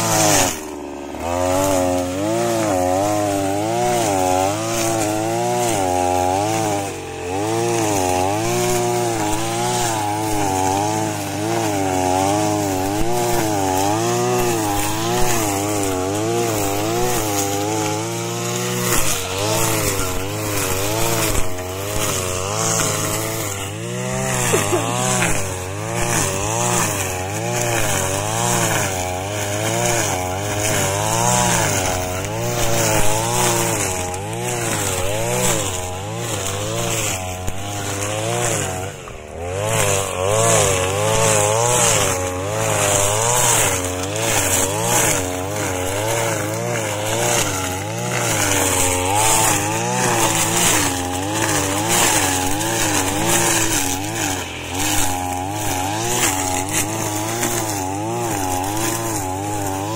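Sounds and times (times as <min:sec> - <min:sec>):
brush cutter engine running: 0:00.0 - 0:59.9
nylon line cutting grass: 0:00.0 - 0:59.9.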